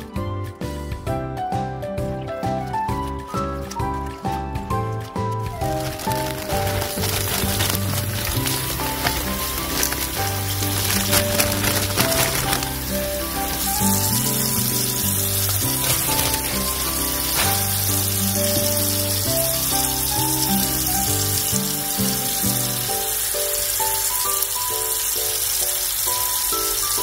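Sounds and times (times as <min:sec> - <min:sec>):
background music with bass: 0:00.0 - 0:23.2
hands turning wet leaves: 0:03.0 - 0:23.2
tap water running into colander: 0:05.8 - 0:27.0.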